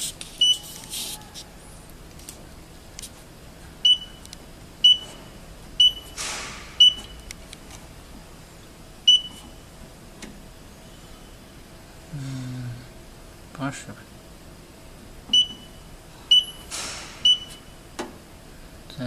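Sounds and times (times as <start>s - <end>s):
keypad beeps: 0.4s - 0.6s, 3.8s - 5.2s, 5.8s - 6.2s, 6.8s - 7.3s, 9.1s - 9.5s, 15.3s - 17.7s.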